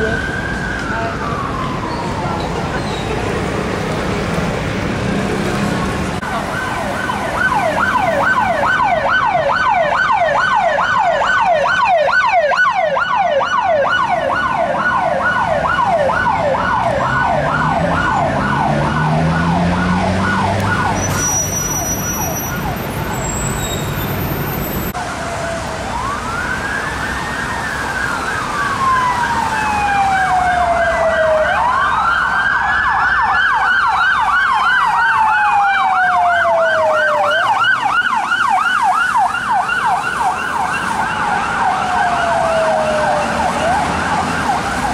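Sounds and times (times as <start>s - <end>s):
siren slow wail: 0.0s - 2.7s, 5.4s - 44.9s
siren fast yelp: 6.5s - 24.9s.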